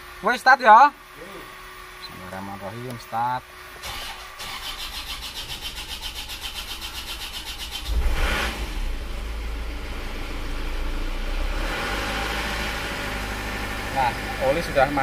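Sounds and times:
diesel engine running: 0:00.0 - 0:15.0
starter motor cranking: 0:03.8 - 0:08.2.

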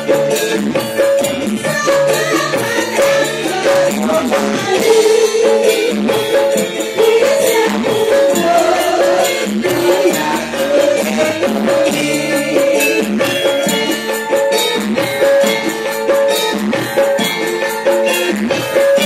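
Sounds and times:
drum and percussion beat: 0:00.0 - 0:19.0
gamelan ensemble playing: 0:00.0 - 0:19.0
sustained metallophone tones: 0:00.0 - 0:19.0
women singing through microphones: 0:01.6 - 0:13.9.

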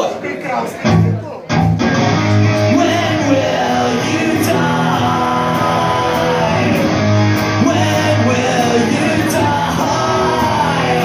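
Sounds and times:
rock band playing: 0:00.8 - 0:11.0
person singing: 0:02.4 - 0:11.0.

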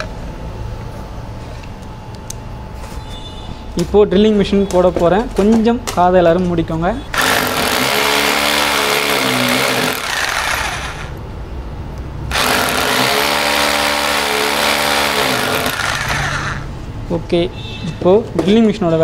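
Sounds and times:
electric drill boring into wall: 0:07.1 - 0:11.2, 0:12.3 - 0:16.7.

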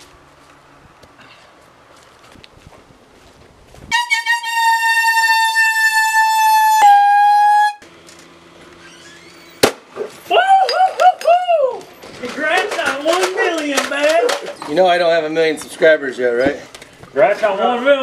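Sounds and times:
party horn honking: 0:03.9 - 0:07.8
sharp crack: 0:09.5 - 0:10.2.

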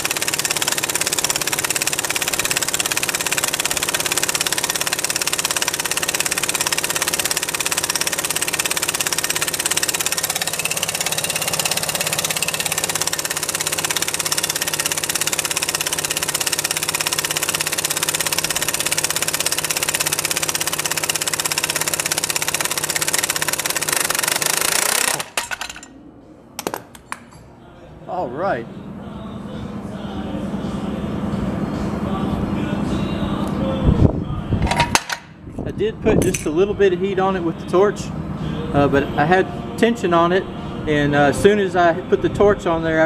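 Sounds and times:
impact wrench hammering: 0:00.0 - 0:26.0, 0:26.6 - 0:27.5, 0:34.6 - 0:35.4, 0:36.2 - 0:36.6.

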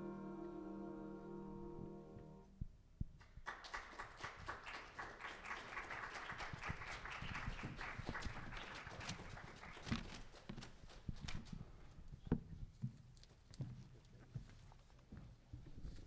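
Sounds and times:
choir holding a chord: 0:00.0 - 0:02.5
audience applauding: 0:03.2 - 0:10.2.

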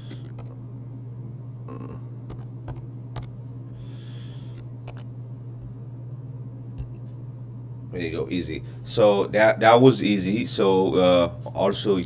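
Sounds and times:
steady low hum: 0:00.0 - 0:12.0
keyboard keys clicking: 0:00.1 - 0:00.5, 0:02.3 - 0:03.3, 0:04.5 - 0:05.0.

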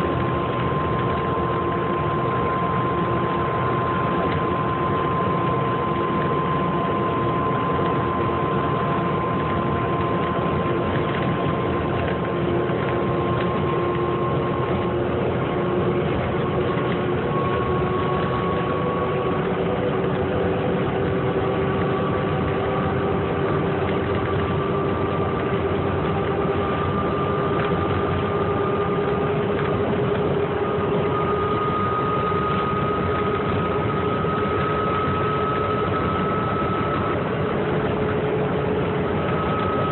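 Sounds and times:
bus engine running: 0:00.0 - 0:39.9
whine rising in pitch: 0:00.0 - 0:39.9.

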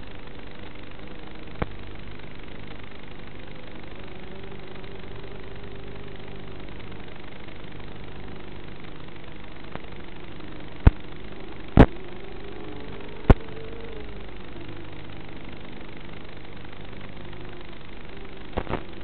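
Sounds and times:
quadcopter motors humming: 0:00.0 - 0:19.0
steady hiss: 0:00.0 - 0:19.0.

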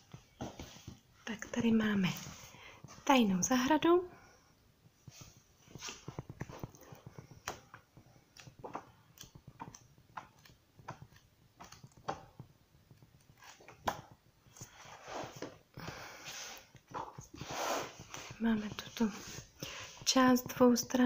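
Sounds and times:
book pages turning: 0:05.0 - 0:20.1
paper sliding rustle: 0:16.2 - 0:18.4.

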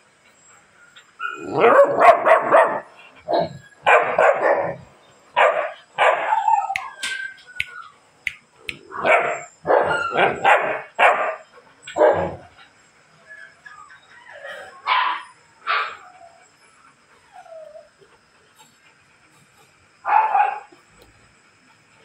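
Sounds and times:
puppy barking: 0:01.3 - 0:02.9, 0:03.8 - 0:04.8, 0:05.4 - 0:06.9, 0:08.9 - 0:11.4, 0:20.0 - 0:20.7
puppy whining faintly: 0:13.2 - 0:19.7.

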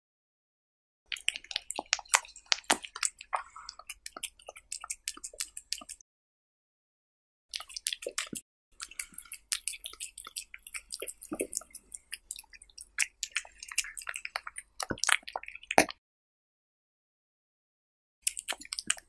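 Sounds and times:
cat chewing and tearing meat: 0:01.1 - 0:06.0, 0:07.6 - 0:16.0, 0:18.3 - 0:19.0.

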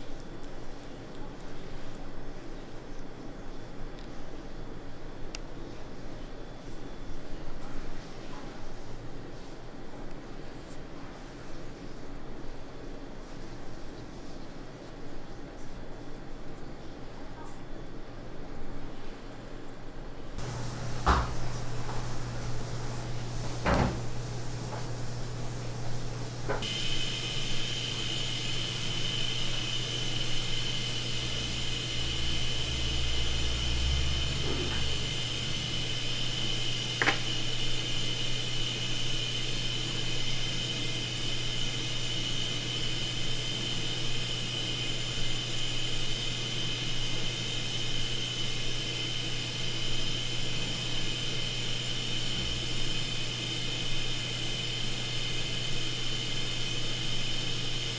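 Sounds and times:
high whine: 0:20.4 - 0:43.2
machine hum: 0:20.4 - 0:57.9.

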